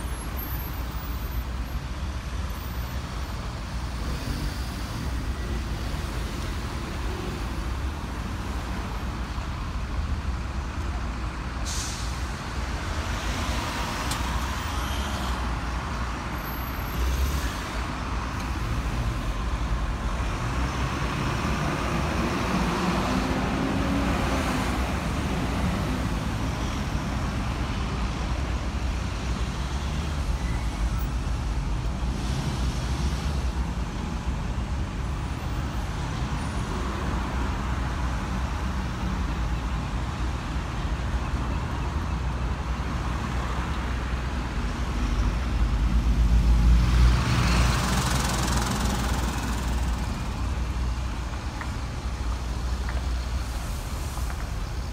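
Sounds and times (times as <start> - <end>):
bus air-brake hiss: 11.6 - 12.4
vehicle engines idling: 47.2 - 54.9.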